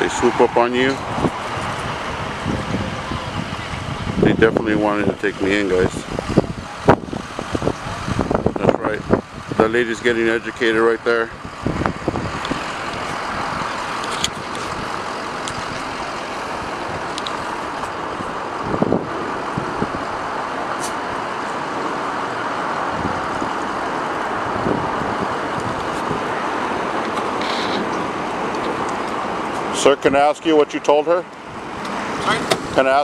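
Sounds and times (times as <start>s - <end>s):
road traffic hum: 0.0s - 33.0s.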